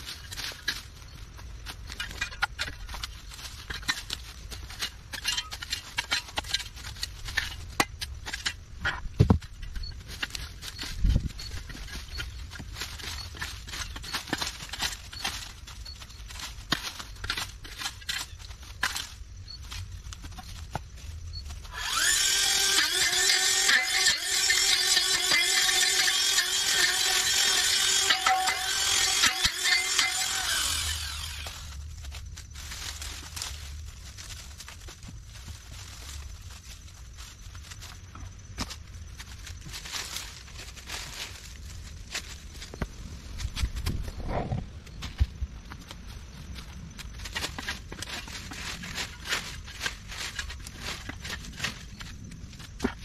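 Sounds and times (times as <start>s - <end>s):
dry leaves crunching and rustling: 0.0s - 53.0s
handheld power tool running: 21.7s - 31.7s.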